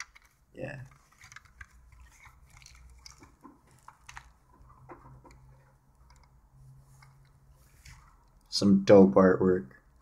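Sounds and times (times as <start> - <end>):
plastic case clicks and crackles: 0.0 - 5.5.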